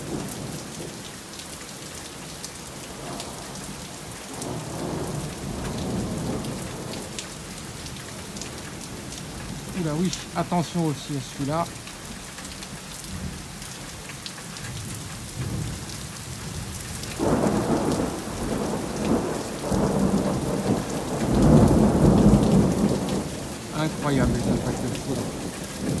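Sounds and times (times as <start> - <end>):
heavy rain: 0.0 - 26.0
thunder rumbling: 14.8 - 26.0.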